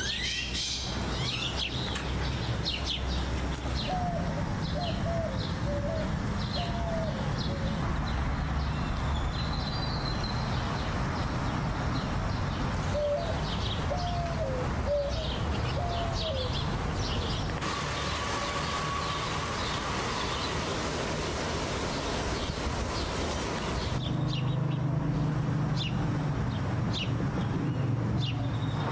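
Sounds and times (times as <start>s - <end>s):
birds chirping and twittering: 0.0s - 28.9s
dove cooing: 3.9s - 7.7s, 12.9s - 16.6s.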